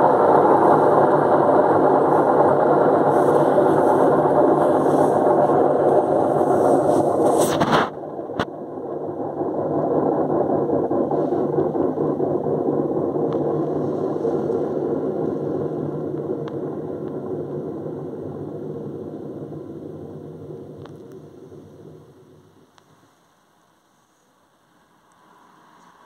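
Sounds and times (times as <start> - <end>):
washing machine drum spinning: 0.0 - 20.8.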